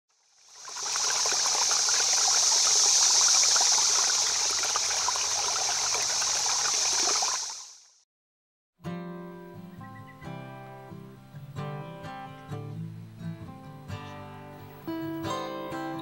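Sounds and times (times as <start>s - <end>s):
stream babbling: 0.3s - 7.8s.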